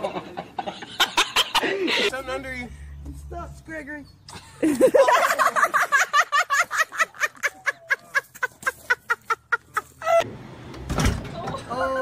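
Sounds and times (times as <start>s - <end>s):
woman laughing: 4.4s - 10.2s.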